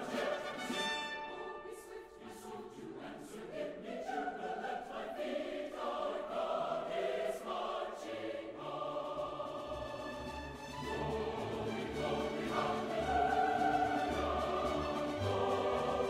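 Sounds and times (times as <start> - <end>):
choir singing held chords: 0.0 - 16.0.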